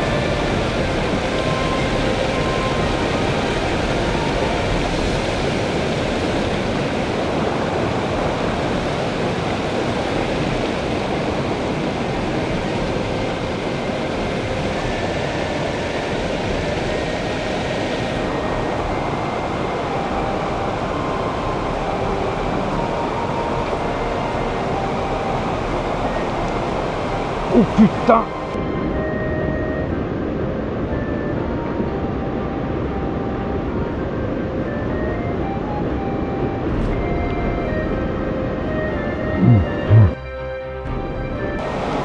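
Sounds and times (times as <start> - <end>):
river water rushing: 0.0 - 30.8, 41.6 - 42.0.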